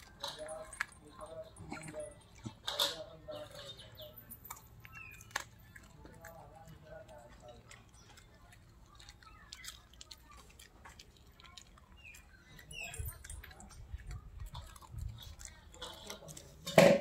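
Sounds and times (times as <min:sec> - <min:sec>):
dog chewing: 0:00.0 - 0:17.0.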